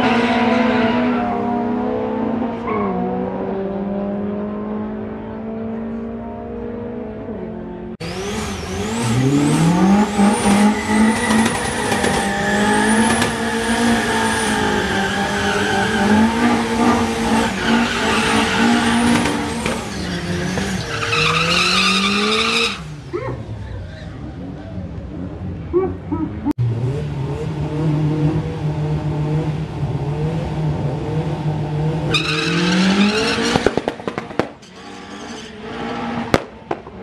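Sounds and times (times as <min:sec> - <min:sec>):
car engine revving: 0:00.0 - 0:37.0
tyres squealing: 0:10.7 - 0:24.1.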